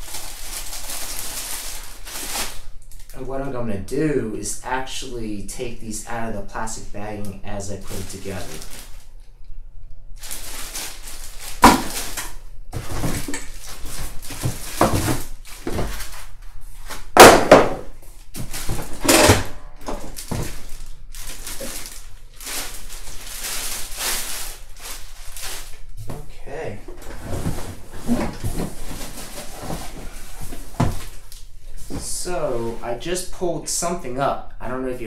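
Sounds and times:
plastic bags crinkling: 0.0s - 3.2s, 7.8s - 9.2s, 10.2s - 17.2s, 18.0s - 26.0s, 27.4s - 31.5s
pieces thudding against cardboard box: 11.6s - 16.2s, 17.2s - 20.6s, 27.4s - 31.2s.

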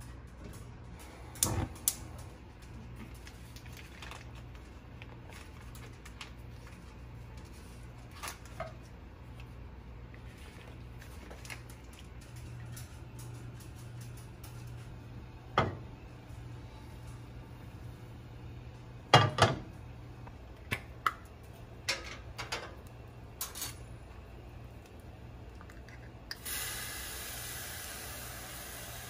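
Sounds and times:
steady low hum: 0.0s - 29.0s
paper wrapper rustling: 2.8s - 8.6s.

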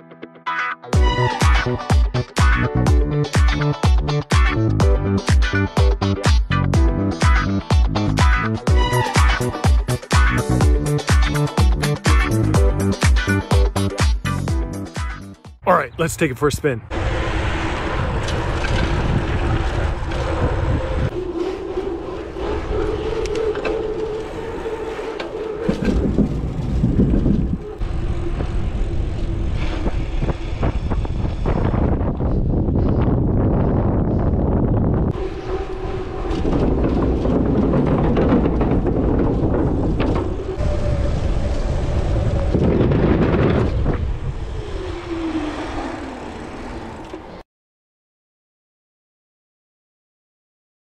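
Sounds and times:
wind on microphone: 16.9s - 47.0s
bike tyres rolling on pavement: 16.9s - 47.4s
wheels rumbling over wooden bridge: 16.9s - 47.4s.

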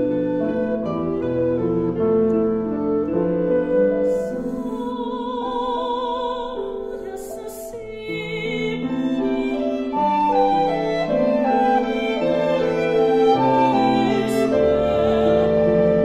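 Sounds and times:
woodwinds: 0.0s - 5.9s, 8.9s - 16.0s
piano: 0.0s - 16.0s
violins: 8.2s - 16.0s.

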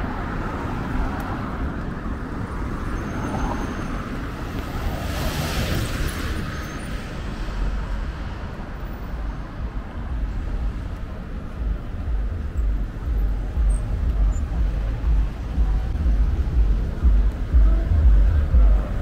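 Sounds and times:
passing cars rumble: 0.0s - 19.0s.

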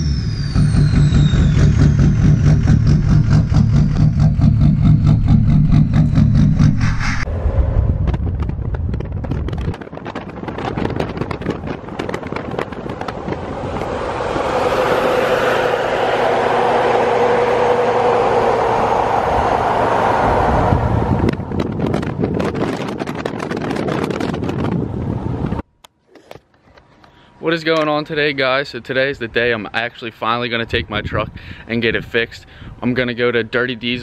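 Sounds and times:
diesel pickup exhaust rushing: 0.0s - 25.6s
highway wind and road noise: 0.0s - 34.0s.

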